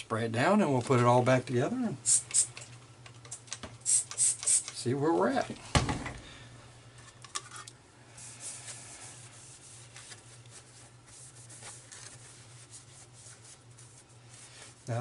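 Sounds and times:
steady low hum: 0.0s - 15.0s
paper towel wiping metal: 8.2s - 15.0s.

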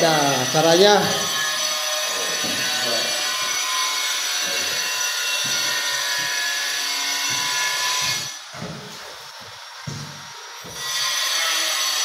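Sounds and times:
squeegee scraping tile floor: 0.7s - 9.3s.

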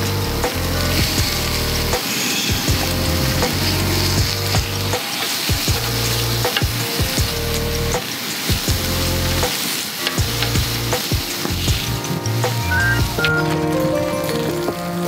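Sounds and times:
meat sizzling on hot plate: 0.6s - 12.4s.

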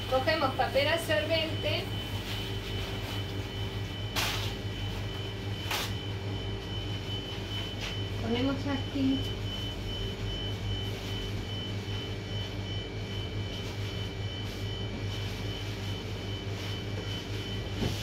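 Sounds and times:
ventilation fan humming: 0.0s - 18.0s
paper towel rustling: 0.2s - 4.6s, 13.5s - 18.0s.

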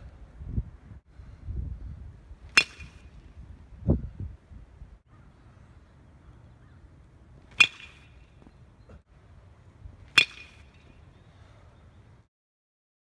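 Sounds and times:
metal bat hitting ball: 2.5s - 3.2s, 7.5s - 8.4s, 10.1s - 11.0s.

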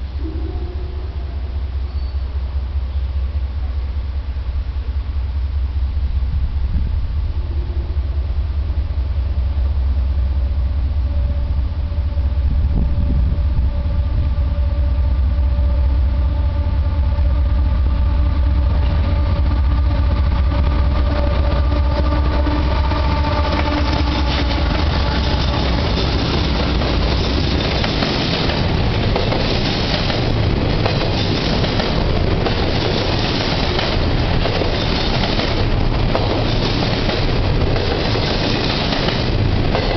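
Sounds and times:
diesel locomotive rumble: 0.0s - 39.9s
wheel and rail noise: 8.4s - 39.9s.

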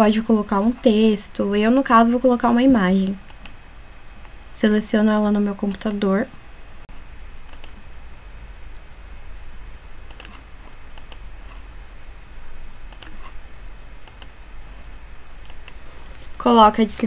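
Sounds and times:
faint low hum: 0.0s - 17.0s
computer mouse clicks: 3.3s - 3.6s, 5.7s - 6.0s, 7.5s - 7.9s, 10.1s - 11.6s, 12.9s - 13.4s, 14.0s - 14.4s, 15.4s - 16.3s.

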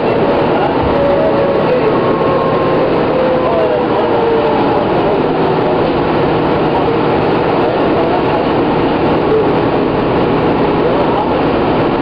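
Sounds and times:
faint whining tones: 0.0s - 7.4s
bus engine and road noise: 0.0s - 12.0s.

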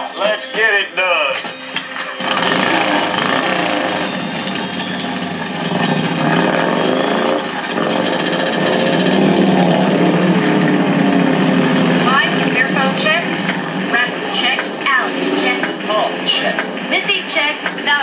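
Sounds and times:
engines revving: 0.0s - 18.0s
rapid high electronic beeping: 0.2s - 10.0s.

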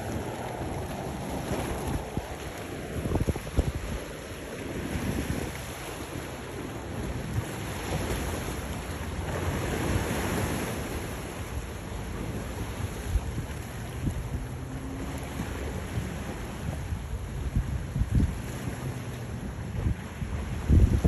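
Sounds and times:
sea waves against rocks: 0.0s - 21.0s
wind buffeting microphone: 0.0s - 21.0s.

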